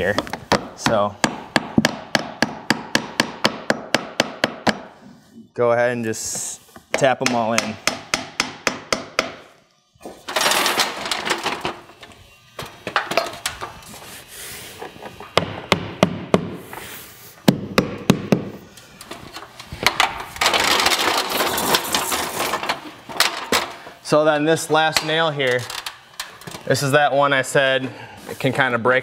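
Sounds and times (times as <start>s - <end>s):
hammer tapping nails: 0.2s - 4.9s, 6.9s - 9.4s.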